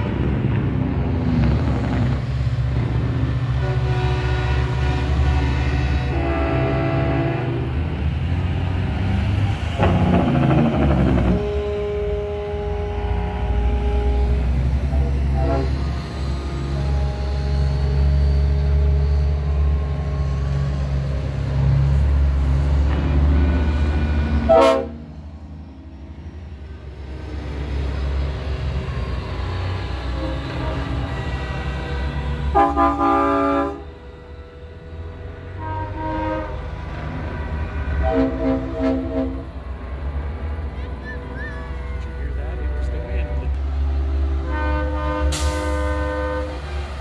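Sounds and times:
diesel trucks rumbling past: 0.0s - 47.0s
truck air horn blasts: 3.5s - 8.0s, 9.8s - 20.8s, 24.4s - 25.1s, 30.0s - 39.6s, 44.3s - 46.8s.

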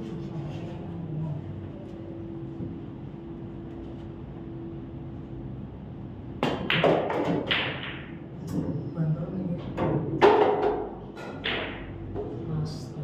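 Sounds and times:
faint steady hum: 0.0s - 13.0s
cue striking ball: 6.4s - 8.2s, 10.2s - 12.1s
pool balls clicking: 6.4s - 8.2s, 10.2s - 12.0s.

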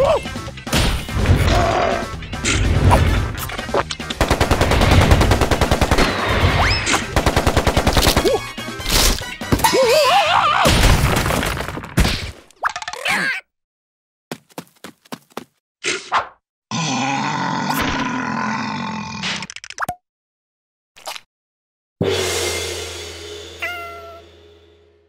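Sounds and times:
background music: 0.0s - 10.2s
rapid gunfire-like hits: 4.1s - 8.4s.

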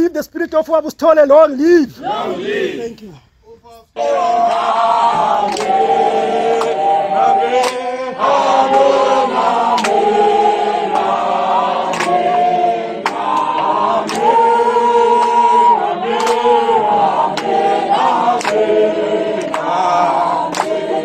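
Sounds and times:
group singing in harmony: 2.0s - 2.9s, 3.9s - 21.0s
sharp claps or knocks: 4.5s - 6.8s, 7.5s - 7.9s, 8.7s - 10.2s, 10.8s - 14.5s, 16.1s - 18.8s, 19.4s - 21.0s.

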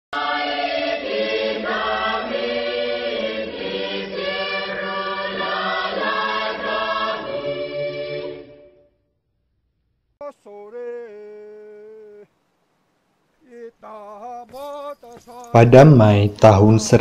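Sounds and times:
choir singing held chords: 0.1s - 9.0s.

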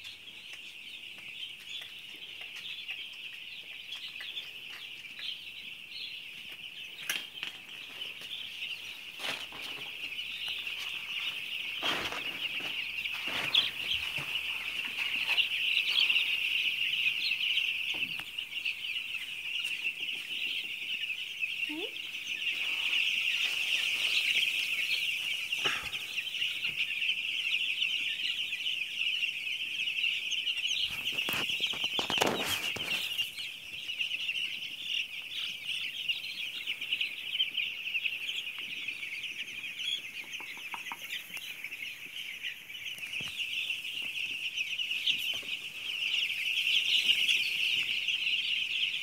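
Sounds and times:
chicks peeping: 0.0s - 49.0s.

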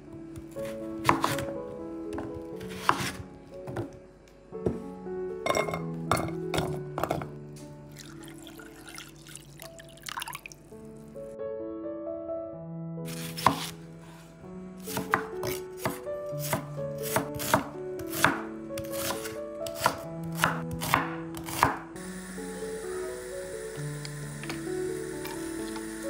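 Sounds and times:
knife chopping onion on board: 0.4s - 1.5s, 2.1s - 3.9s, 13.1s - 13.8s, 14.8s - 21.8s.

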